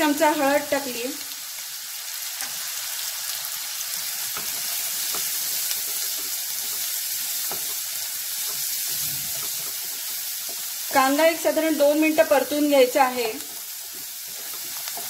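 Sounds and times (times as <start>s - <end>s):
onion sizzling in hot oil: 0.0s - 15.0s
wooden spatula scraping a pan: 4.2s - 10.6s, 13.4s - 15.0s.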